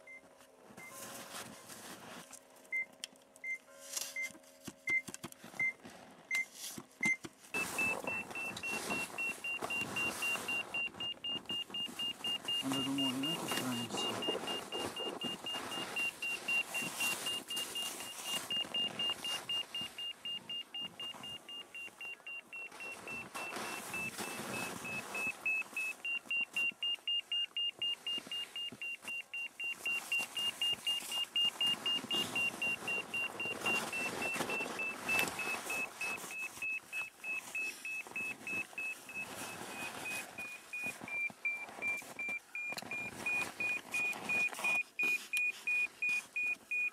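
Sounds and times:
rustling handling noise: 0.0s - 46.9s
rapid high-pitched beeping: 7.6s - 25.8s.

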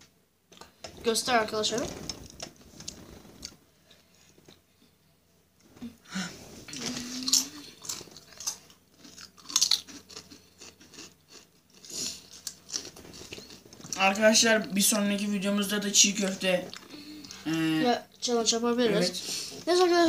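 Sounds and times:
chips crunching being chewed: 6.7s - 14.0s.

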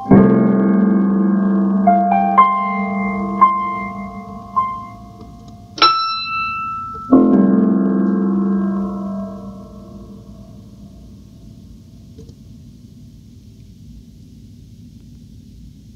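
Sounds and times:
digital piano chords and notes: 0.0s - 10.6s.

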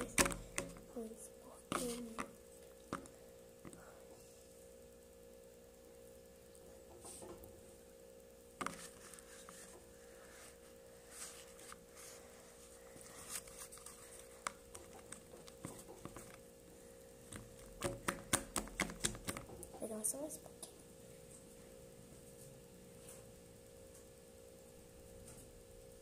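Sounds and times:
slime being kneaded: 0.0s - 1.0s, 1.7s - 3.8s, 17.3s - 19.5s.

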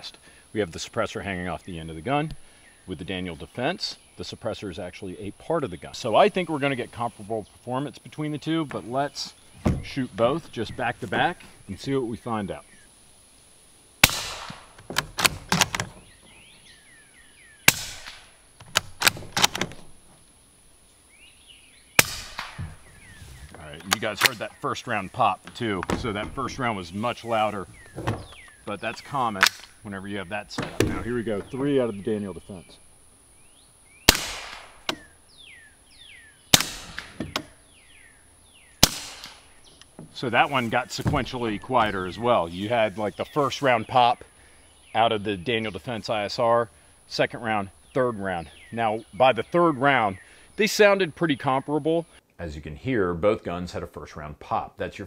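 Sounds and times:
suppressed rifle shots: 14.0s - 16.0s, 17.6s - 19.9s, 22.0s - 23.0s, 34.0s - 35.1s, 36.5s - 37.6s, 38.8s - 39.6s
rifle bolt clacking: 17.7s - 19.9s, 29.4s - 29.8s.

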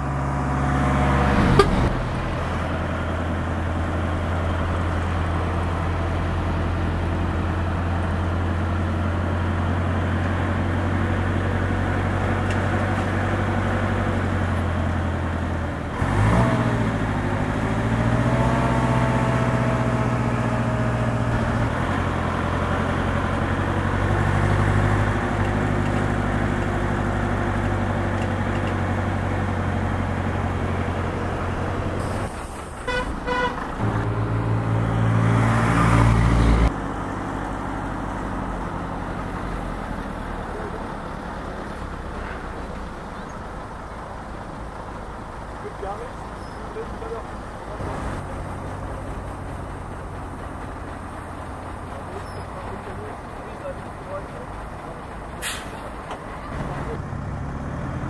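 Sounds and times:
engine passing by: 0.0s - 58.0s
truck diesel engine running: 0.0s - 58.0s
short horn toots: 1.4s - 1.9s, 32.0s - 34.0s.

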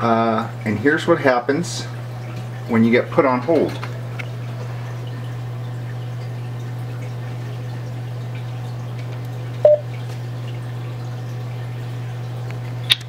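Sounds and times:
short electronic beep: 9.6s - 9.8s.

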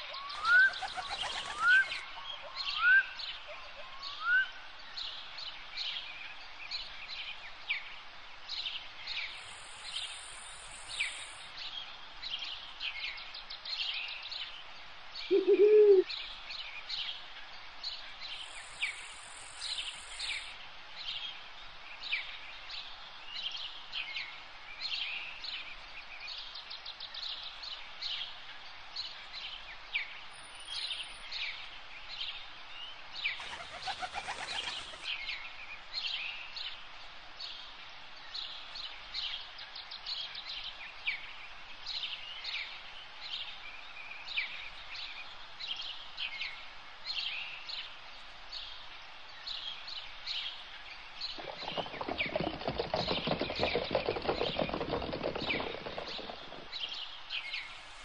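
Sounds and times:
rising whistled bird calls: 0.0s - 3.2s, 15.3s - 16.1s
birds chirping: 0.0s - 4.2s, 15.3s - 16.1s, 33.3s - 35.4s, 51.2s - 58.0s
loud low bird call: 15.3s - 16.1s.

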